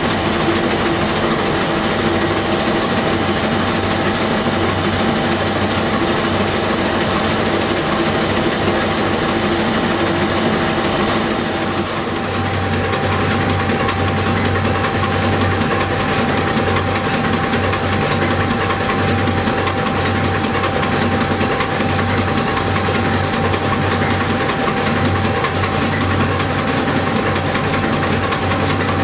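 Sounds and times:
marine diesel engine running: 0:00.0 - 0:29.0
valve gear clattering: 0:00.0 - 0:29.0.

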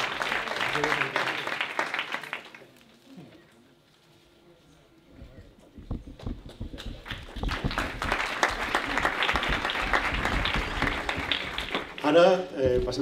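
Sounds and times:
audience applauding: 0:00.0 - 0:02.8, 0:06.4 - 0:12.4.

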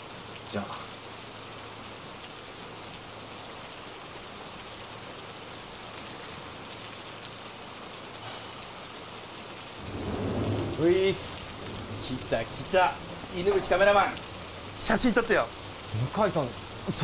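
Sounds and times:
steady hiss: 0:08.2 - 0:17.0.

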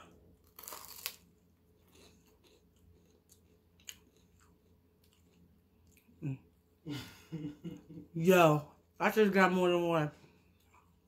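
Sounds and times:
crisp crunch: 0:00.4 - 0:04.5
faint chewing: 0:00.4 - 0:06.2.

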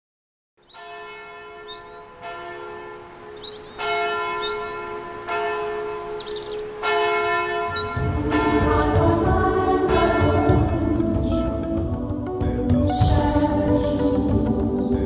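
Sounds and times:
church bell tolling: 0:00.7 - 0:09.2.

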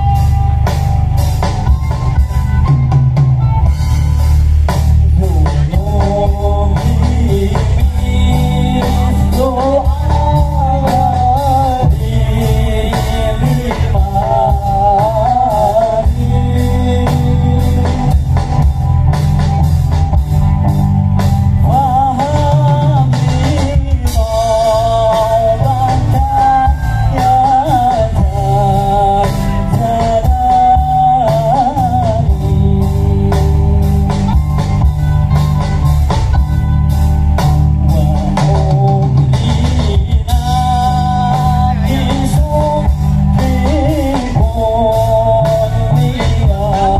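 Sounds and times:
drums: 0:00.0 - 0:46.9
guitar: 0:00.0 - 0:46.9
heavy bass: 0:00.0 - 0:46.9
person singing: 0:05.1 - 0:18.7, 0:21.6 - 0:34.8, 0:37.8 - 0:46.9.

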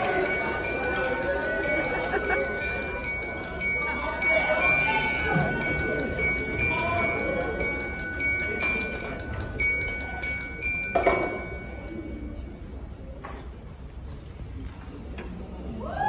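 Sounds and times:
high ringing notes: 0:00.0 - 0:12.8
chimes tinkling: 0:00.0 - 0:13.2.

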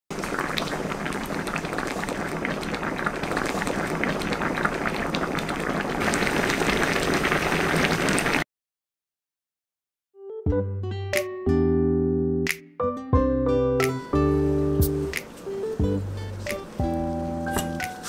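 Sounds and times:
stew bubbling in a pan: 0:00.1 - 0:08.4.

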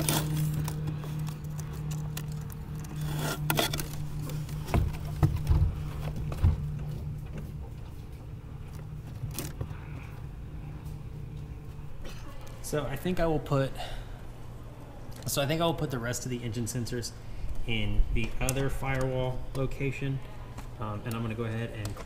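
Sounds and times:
wires rustling and scraping: 0:00.0 - 0:12.0
steady low hum: 0:00.0 - 0:22.0.

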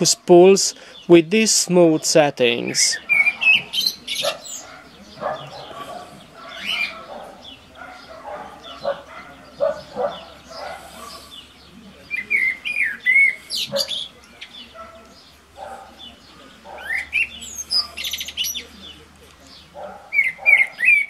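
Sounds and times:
small birds chirping: 0:00.0 - 0:21.0.

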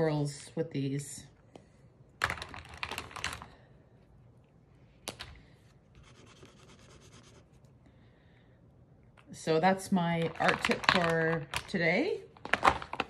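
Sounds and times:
crayon scratching on paper: 0:06.0 - 0:07.6.

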